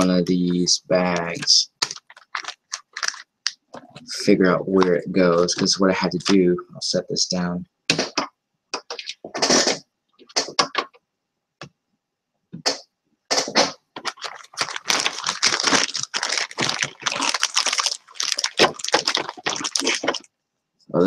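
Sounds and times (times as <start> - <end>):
plastic bag crinkling: 1.2 - 3.5, 14.0 - 20.3
hands rummaging small parts: 1.2 - 3.6, 14.0 - 20.3.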